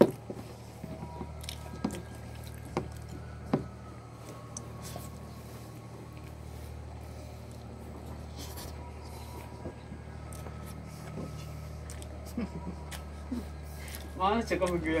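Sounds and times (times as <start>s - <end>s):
boat machinery hum: 0.0s - 15.0s
slurping and chewing noodles: 1.2s - 3.4s, 10.2s - 14.8s.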